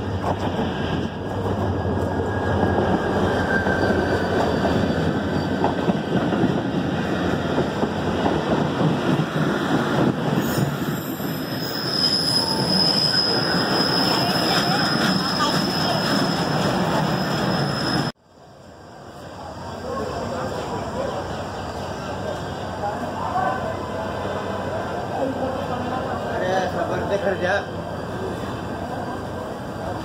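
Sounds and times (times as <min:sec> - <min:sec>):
train wheels rumbling on rail: 0:00.0 - 0:18.1
high wheel squeal: 0:01.7 - 0:05.7, 0:10.4 - 0:18.2.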